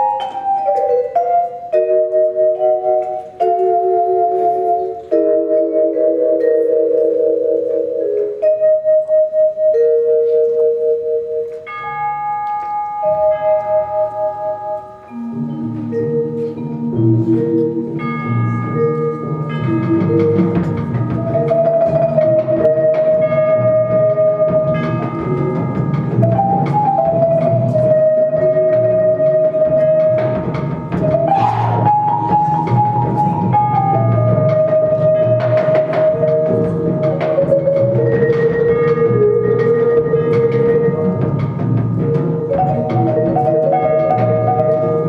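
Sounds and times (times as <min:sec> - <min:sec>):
short lower mallet notes: 0:00.0 - 0:45.0
drums: 0:12.1 - 0:45.0.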